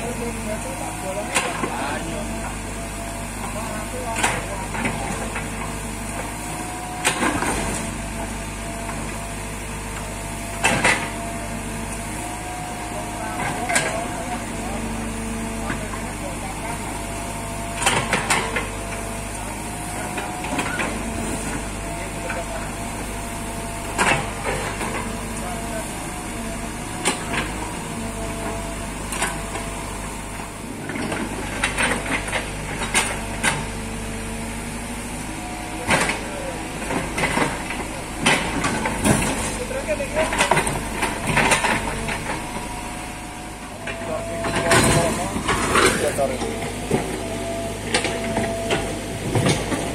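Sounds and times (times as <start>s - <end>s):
diesel engine running: 0.0s - 49.9s
excavator bucket digging: 9.9s - 34.2s, 34.8s - 49.9s
thin steady whine: 41.0s - 49.8s.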